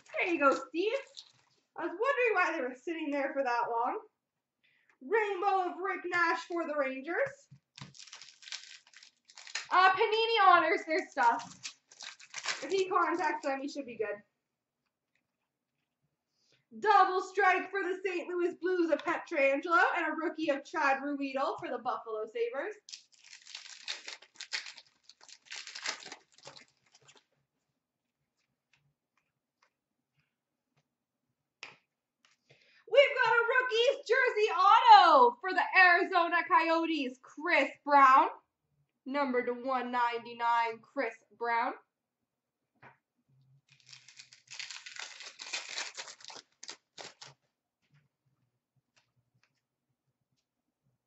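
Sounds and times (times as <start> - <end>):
foil wrapper crinkling: 0.0 - 1.7, 7.7 - 9.9, 11.0 - 13.7, 22.8 - 27.3, 43.7 - 47.4
cards ticking as flipped: 43.7 - 47.4.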